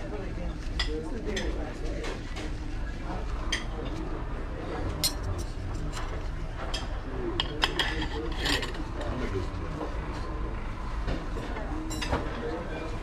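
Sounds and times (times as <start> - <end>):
cutlery clinking on a plate: 4.9 - 8.8.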